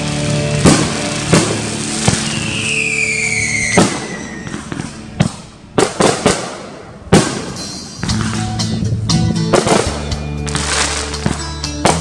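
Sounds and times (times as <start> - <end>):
falling firework whistle: 0.0 - 5.0.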